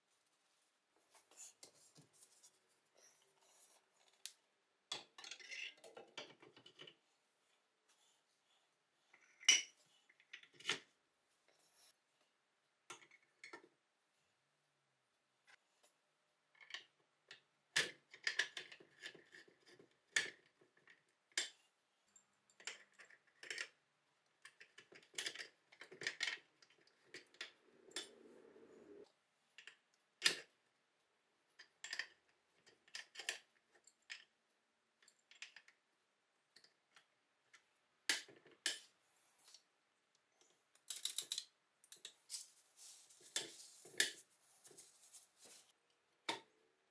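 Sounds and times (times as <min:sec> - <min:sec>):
metallic clicks and clinks: 0:40.8 - 0:42.2
scraping rustle: 0:42.2 - 0:45.8.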